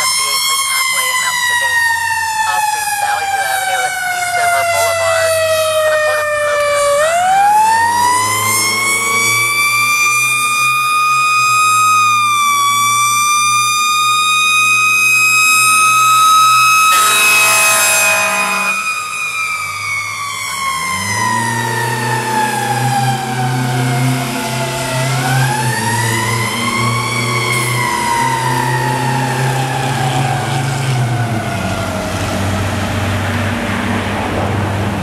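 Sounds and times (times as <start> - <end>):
fire truck siren wailing: 0.0 - 35.0
truck engine revving: 0.0 - 35.0
air horn blast: 16.7 - 19.1.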